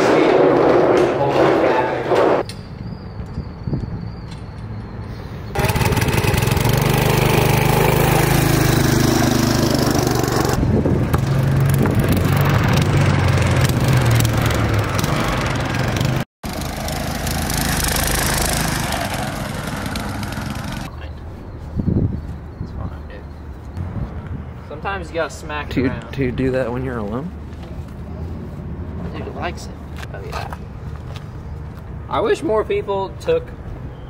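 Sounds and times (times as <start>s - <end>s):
small gasoline engine running: 5.6s - 10.6s, 12.8s - 20.9s.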